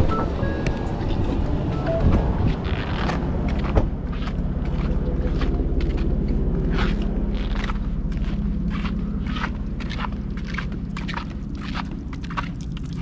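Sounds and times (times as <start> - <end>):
wind noise: 0.0 - 4.1
boat motor running: 0.0 - 13.0.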